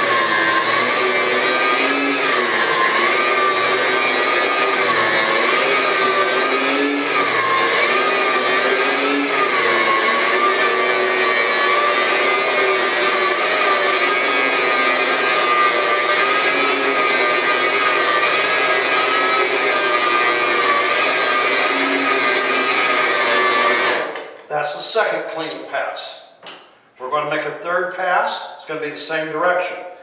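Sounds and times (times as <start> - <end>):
carpet-cleaning machine motor whine: 0.0 - 24.2.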